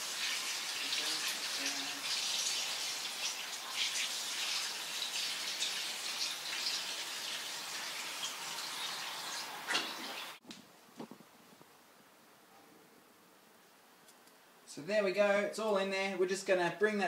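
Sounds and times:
water pouring and splashing: 0.0s - 10.4s.

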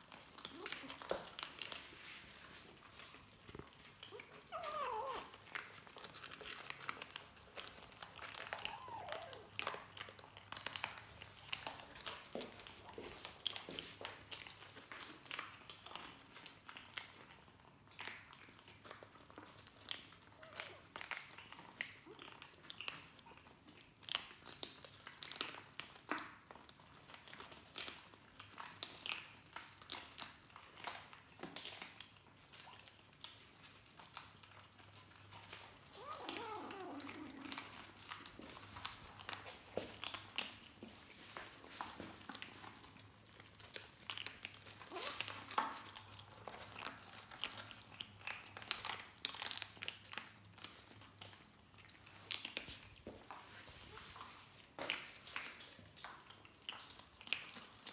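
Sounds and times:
kittens crunching dry kibble: 0.0s - 57.9s
kitten mewing: 35.9s - 37.8s.

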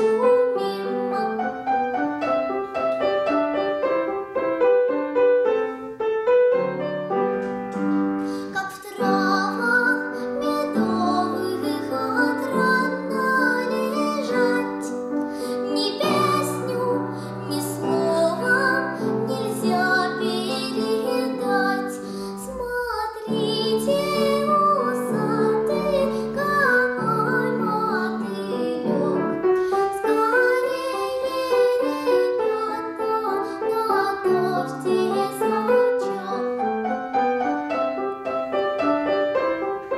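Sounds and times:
girl singing: 0.0s - 2.0s, 7.8s - 36.9s
piano accompaniment: 0.0s - 39.9s.

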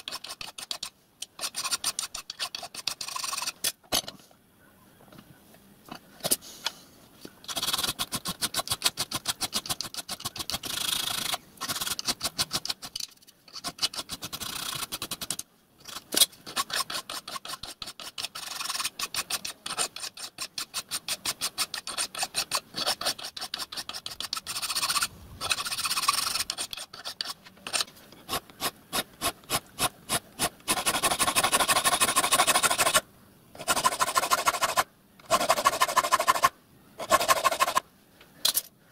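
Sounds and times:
file rasping on metal: 0.0s - 3.6s, 15.9s - 33.0s, 33.6s - 37.8s.

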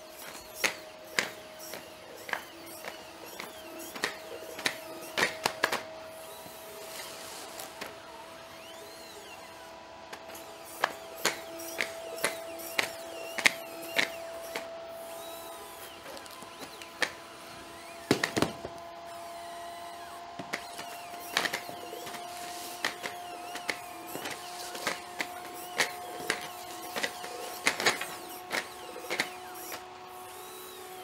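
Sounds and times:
robot hydraulic whine: 0.0s - 31.0s
clicks and knocks of robot feet: 0.2s - 5.8s, 10.1s - 14.7s, 18.1s - 18.8s, 20.4s - 29.8s.

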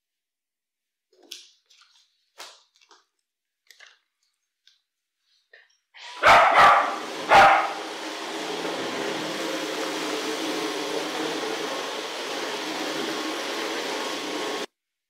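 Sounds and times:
dog barking: 6.2s - 7.9s.

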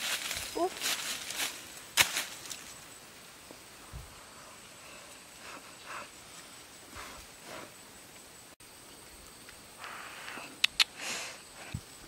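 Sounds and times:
rustling in dry leaf litter: 0.0s - 2.9s.

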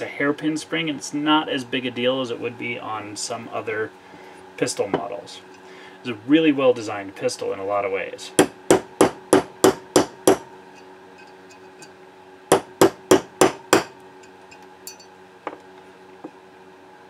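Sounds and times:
hammer tapping a punch: 8.4s - 10.5s, 12.5s - 14.0s.

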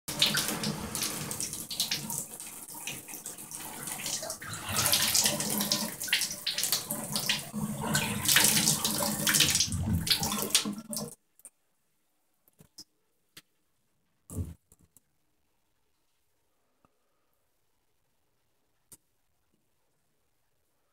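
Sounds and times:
water splashing into bathtub: 0.1s - 11.2s.

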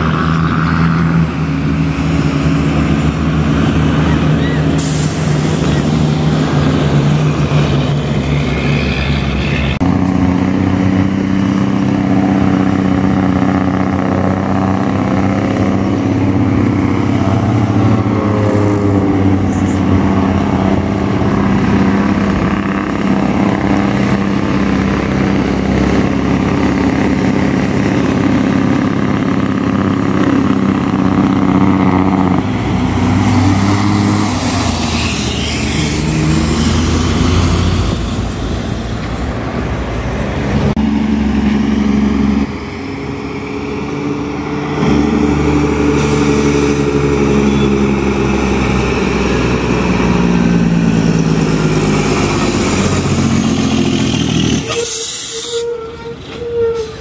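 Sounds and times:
diesel truck engine braking: 0.0s - 57.0s.

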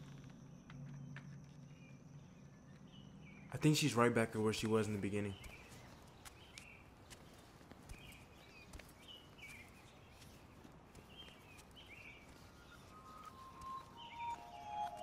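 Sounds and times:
birds chirping faintly: 0.0s - 15.0s
soft descending music tones: 12.4s - 15.0s.

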